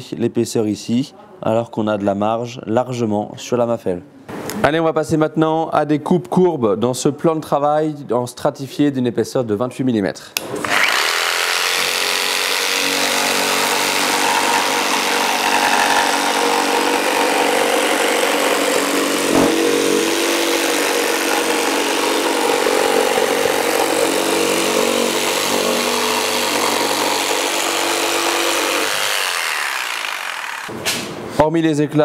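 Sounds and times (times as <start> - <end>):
jigsaw cutting worktop: 10.4 - 30.7
sharp knock: 19.3 - 19.9.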